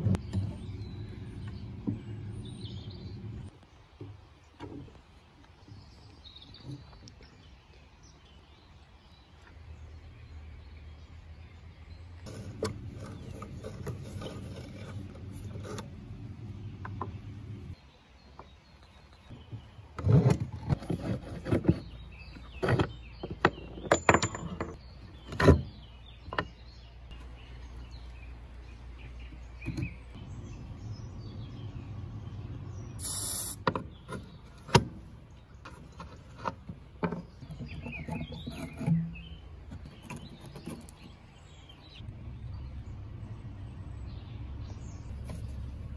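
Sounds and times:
low steady hum: 0.0 - 21.4, 24.4 - 45.9
metal knocking and scraping on wood: 12.3 - 17.8, 19.3 - 27.3, 33.6 - 41.2
short hiss: 33.0 - 33.6.

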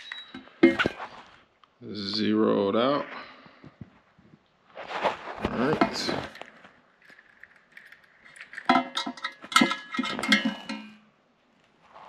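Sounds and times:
metal exhaust pipe clanking: 0.3 - 1.0, 8.7 - 11.0.

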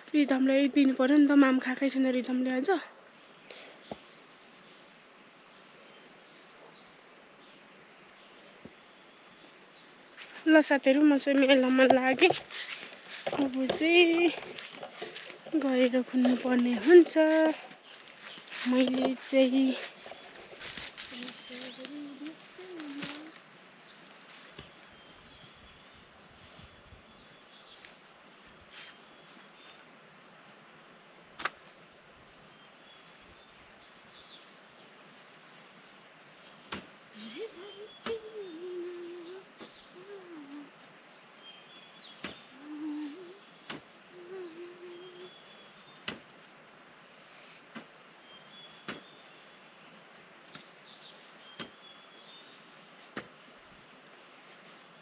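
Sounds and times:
insects droning: 0.0 - 55.0
faint wavering low tones: 36.5 - 45.8.

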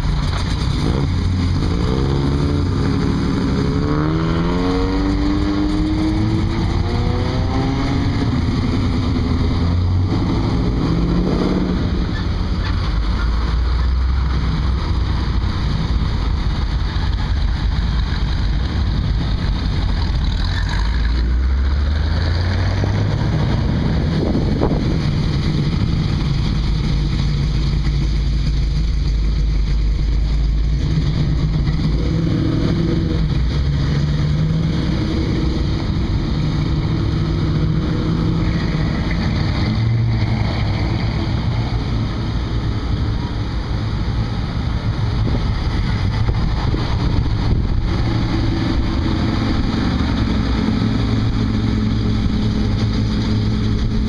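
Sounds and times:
car engines running: 0.0 - 54.0
engine revving up: 0.7 - 12.1, 30.8 - 42.0.

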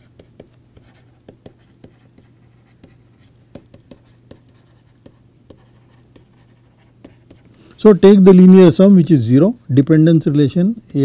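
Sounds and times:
stylus tapping on a tablet: 0.0 - 6.4, 7.0 - 7.5.

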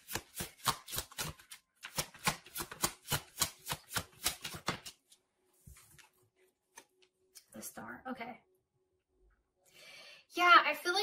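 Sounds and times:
cards being shuffled: 0.0 - 5.2.

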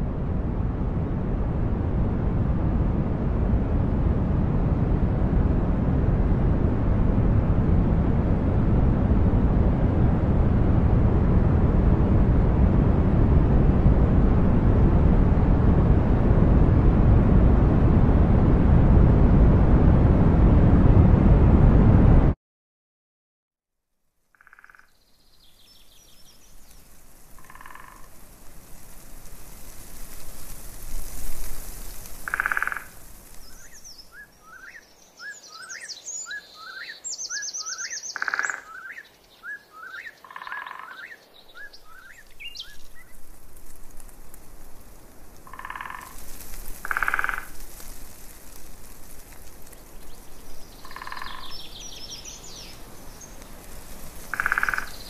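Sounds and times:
steady outdoor hiss: 0.0 - 17.7, 24.2 - 55.0
frogs croaking: 24.3 - 25.1, 26.1 - 28.2, 32.1 - 42.8, 45.4 - 47.7, 50.1 - 55.0
bird chirping and trilling: 33.5 - 43.1, 50.5 - 53.4.

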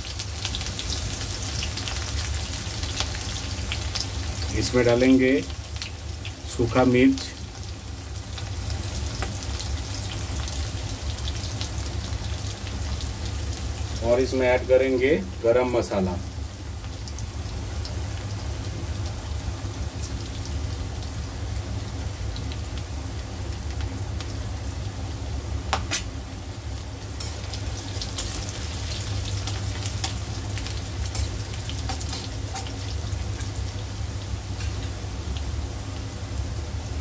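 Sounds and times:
low steady hum: 0.0 - 37.0
spices sizzling in hot oil: 0.0 - 37.0.

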